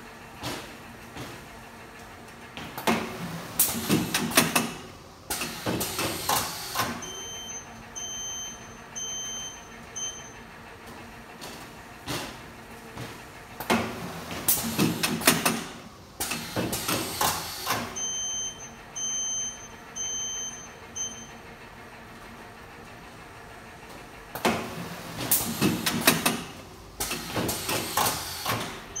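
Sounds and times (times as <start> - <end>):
machine clacking and knocking: 2.7 - 7.1, 11.4 - 18.0, 24.4 - 28.9.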